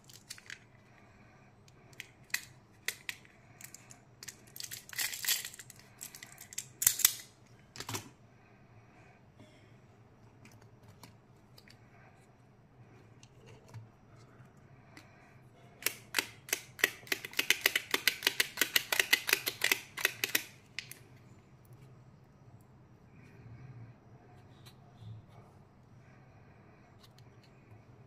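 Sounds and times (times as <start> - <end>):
plastic candies clicking together: 0.0 - 0.7, 1.9 - 8.0, 15.8 - 21.0
faint clicks of capsules handled: 1.6 - 8.1, 10.3 - 11.8, 15.8 - 21.0.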